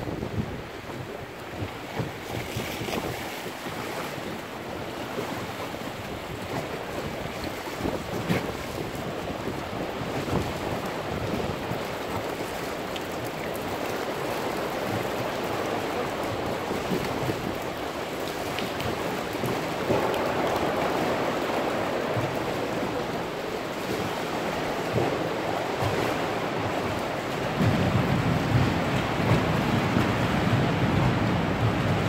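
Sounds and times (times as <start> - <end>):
waves sloshing against rock: 0.0 - 32.0
water dripping onto sea: 4.4 - 32.0.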